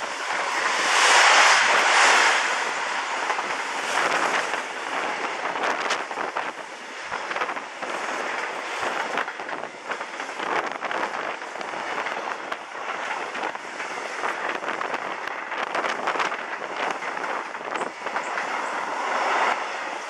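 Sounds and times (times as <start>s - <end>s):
freight train wheels on rails: 0.0s - 20.0s.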